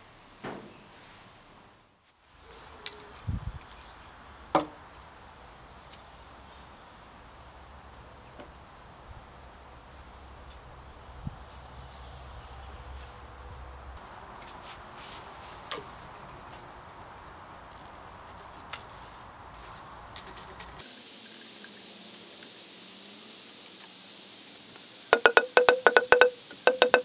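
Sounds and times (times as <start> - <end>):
low steady rumble: 8.7 - 14.0
knocks and clicks of handled tools: 25.1 - 27.0.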